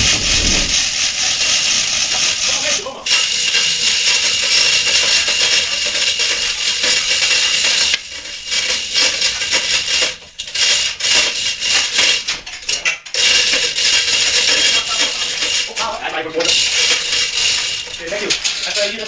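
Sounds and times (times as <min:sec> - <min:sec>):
dense rushing noise: 0:00.0 - 0:01.1
chain hoists clattering and ratcheting: 0:00.0 - 0:19.0.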